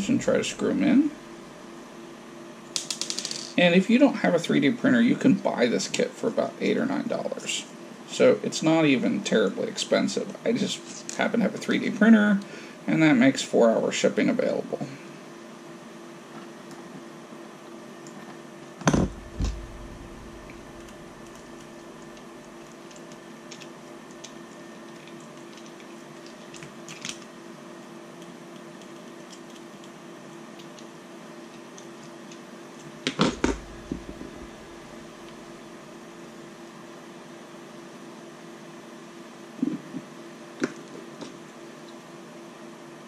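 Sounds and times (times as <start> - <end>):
steady hum: 0.0 - 43.0
tools knocking on workbench: 33.1 - 34.5.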